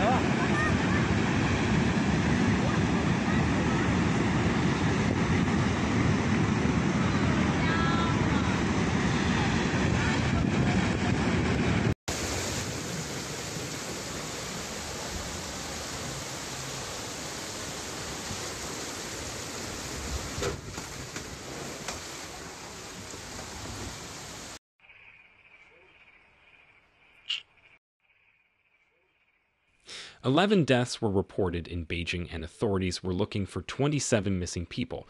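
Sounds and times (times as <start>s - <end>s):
floodwater rushing: 0.0s - 24.6s
rain and water heard from car: 12.1s - 24.6s.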